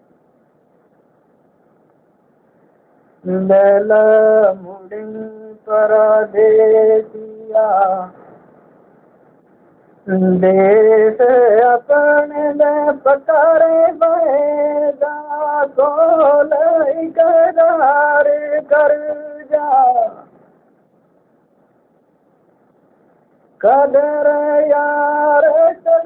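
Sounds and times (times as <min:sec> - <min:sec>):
man singing unaccompanied: 0:03.2 - 0:08.2, 0:10.0 - 0:20.3, 0:23.6 - 0:26.0.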